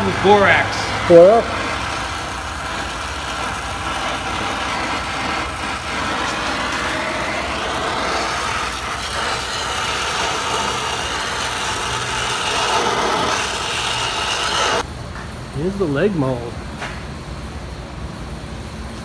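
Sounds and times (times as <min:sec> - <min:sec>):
welding torch flame hissing: 0:00.0 - 0:14.9.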